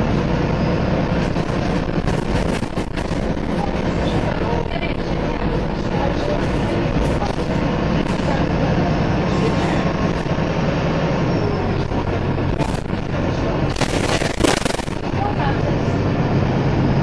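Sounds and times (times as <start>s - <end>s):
bus body rattling: 0.0s - 17.0s
bus engine drone: 0.0s - 17.0s
harsh noisy burst: 13.7s - 15.3s.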